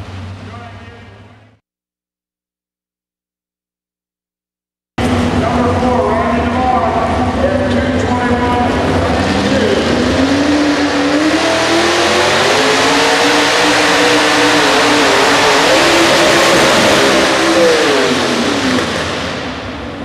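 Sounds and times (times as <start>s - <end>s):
truck engine revving hard: 5.0s - 20.0s.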